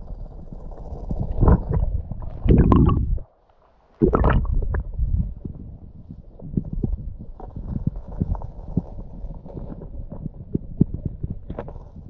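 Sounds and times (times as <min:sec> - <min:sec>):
muffled underwater river rumble: 0:00.0 - 0:12.0.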